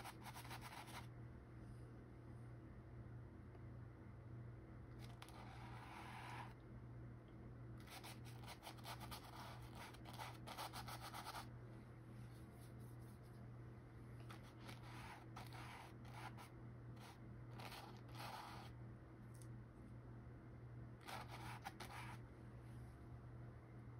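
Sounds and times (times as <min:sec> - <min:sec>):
steady low hum: 0:00.0 - 0:23.9
paintbrush scratching on canvas: 0:05.0 - 0:06.6, 0:14.3 - 0:18.8, 0:21.0 - 0:22.2.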